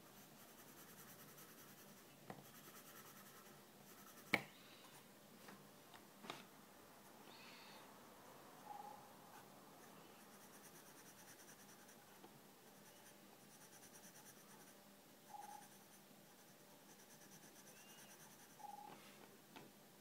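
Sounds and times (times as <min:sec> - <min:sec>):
pencil scratching on paper: 0:00.1 - 0:04.3, 0:08.7 - 0:18.7.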